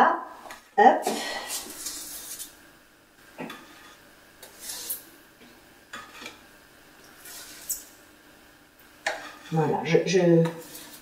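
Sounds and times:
spatula scraping a metal tray: 1.5 - 2.6, 3.5 - 5.1, 5.9 - 6.4, 7.2 - 7.9, 9.0 - 11.0.

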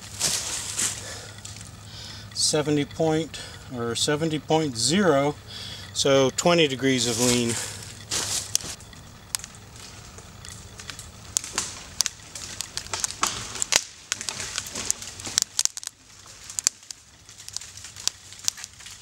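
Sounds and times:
tree wood cracking and snapping: 0.0 - 2.6, 7.0 - 19.0.

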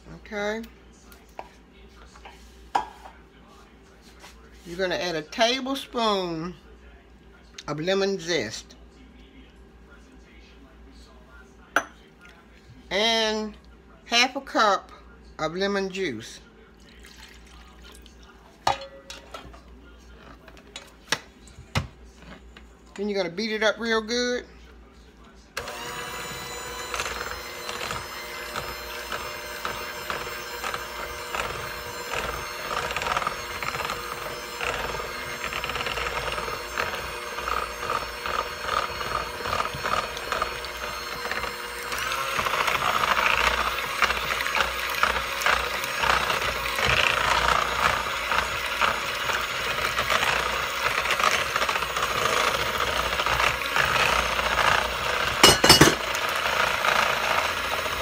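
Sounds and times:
electric mixer whining and rattling: 25.6 - 58.0.

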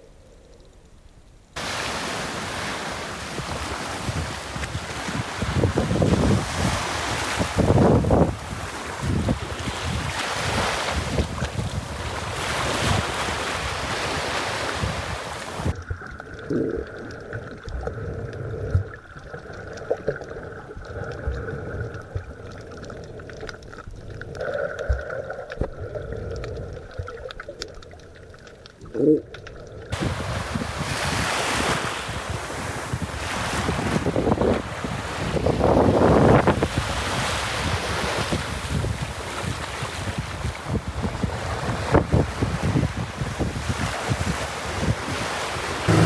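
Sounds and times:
small waves on sandy shore: 1.6 - 16.0, 29.9 - 46.0
wind buffeting microphone: 2.4 - 15.8, 29.9 - 46.0
muffled underwater sound: 15.6 - 29.9
faint underwater clicks: 15.7 - 29.9.

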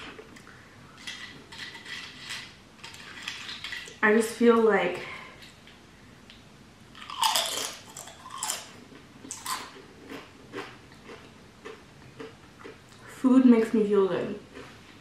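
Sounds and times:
person chewing food: 7.0 - 13.0, 14.5 - 15.0.

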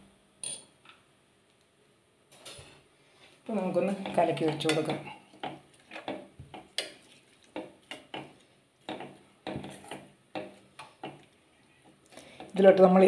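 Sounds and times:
spoon clinking and scraping pan: 4.0 - 7.0.

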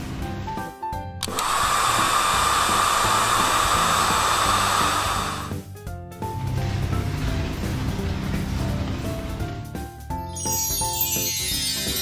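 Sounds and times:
light background music: 0.0 - 12.0
air-dryer blowing with hum: 1.2 - 5.7.

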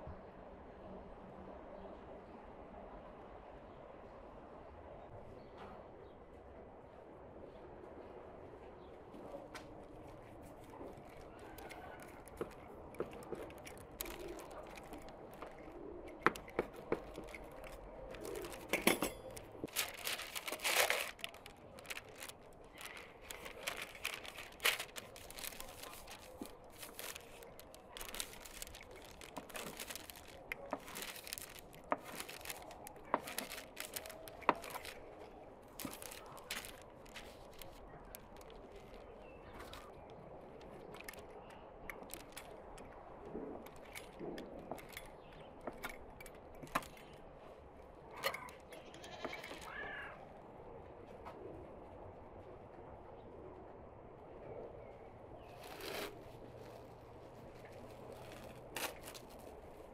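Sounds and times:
baking paper rustling: 10.4 - 40.0, 42.0 - 42.7, 55.5 - 59.9.

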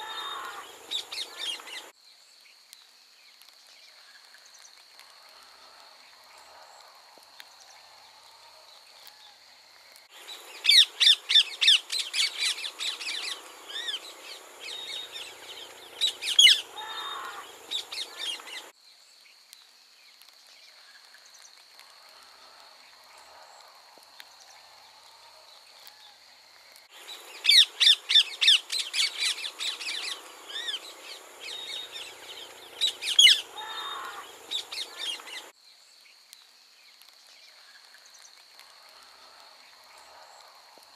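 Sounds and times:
parakeets squawking shrilly: 16.0 - 18.4, 32.8 - 35.3.

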